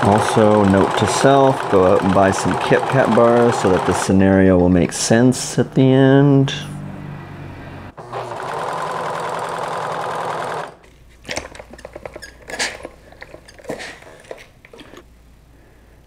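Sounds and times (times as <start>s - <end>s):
serger sewing machine whirring: 0.0s - 4.7s, 7.9s - 10.8s.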